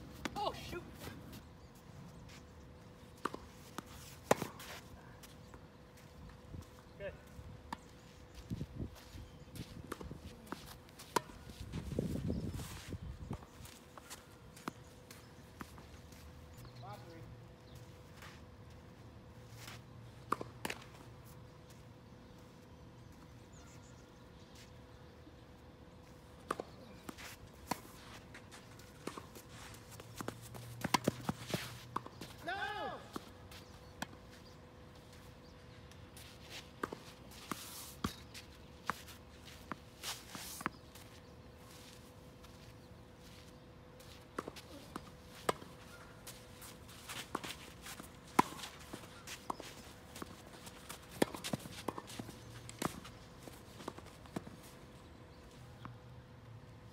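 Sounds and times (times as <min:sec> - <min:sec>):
racket strikes and ball bounces: 0:28.7 - 0:32.5, 0:44.3 - 0:54.5
footstep scuffs: 0:35.9 - 0:54.8.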